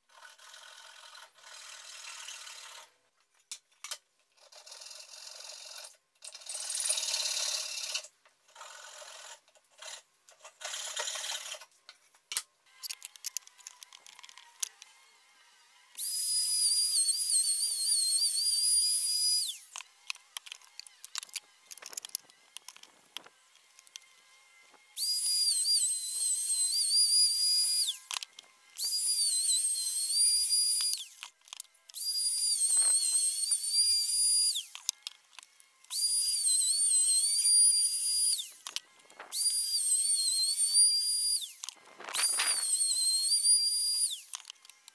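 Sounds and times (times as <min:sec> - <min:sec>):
router whining: 0:12.6 - 0:44.9.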